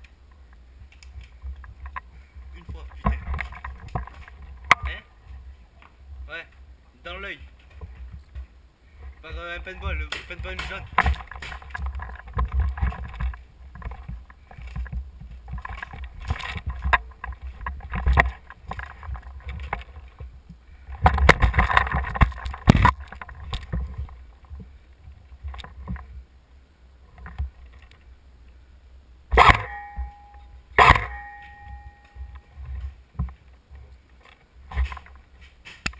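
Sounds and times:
gear knocking and rustling: 0.8 - 5.4, 7.4 - 26.2
sharp ringing cracks: 29.3 - 32.5.

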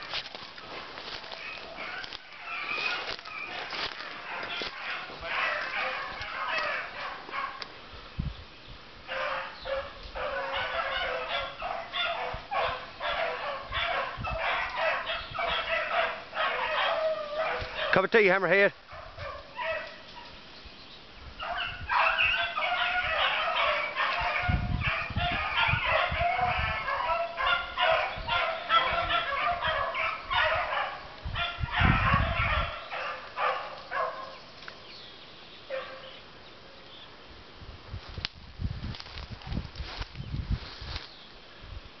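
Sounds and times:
dogs baying and yelping: 1.1 - 7.7, 9.1 - 18.1, 18.8 - 20.4, 21.4 - 34.4, 35.7 - 36.1.

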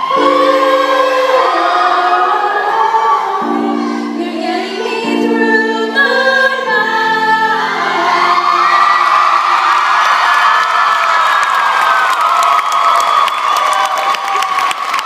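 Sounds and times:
choir singing held chords: 0.0 - 9.8.

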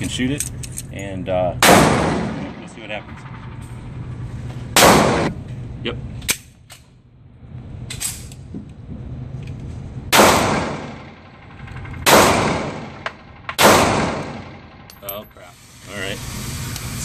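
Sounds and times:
pistol shots echoing indoors: 1.6 - 2.6, 10.1 - 11.2.

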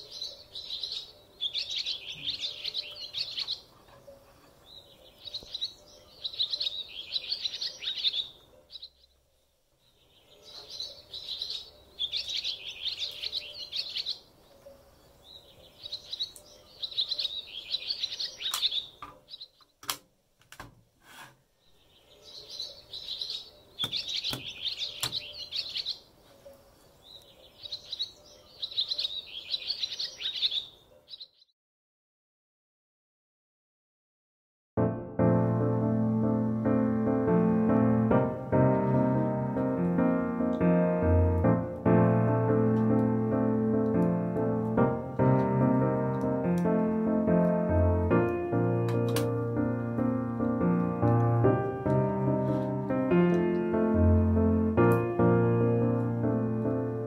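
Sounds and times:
small birds chirping: 0.0 - 19.8, 21.5 - 31.5
sharp clicks: 48.2 - 49.4.

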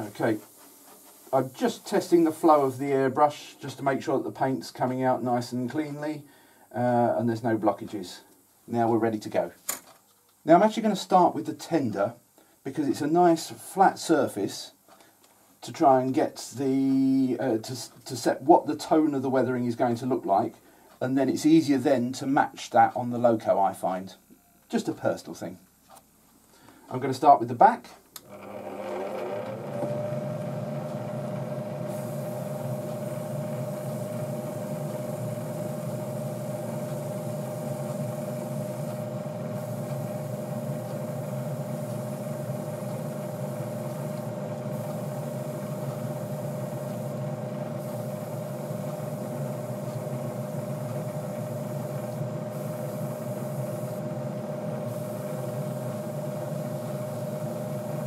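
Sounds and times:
airbrush hissing: 0.0 - 2.7, 31.8 - 58.0
extractor fan motor hum: 28.2 - 58.0.

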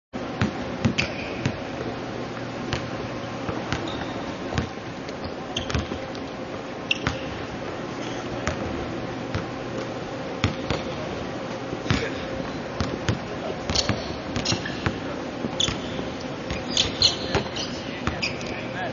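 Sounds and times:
steady low hum: 0.2 - 18.9
sneaker squeaks: 0.8 - 1.6, 2.7 - 6.2, 6.8 - 8.6, 11.9 - 18.8
basketballs bouncing on hardwood: 5.6 - 6.0, 10.4 - 11.0, 12.8 - 15.9.

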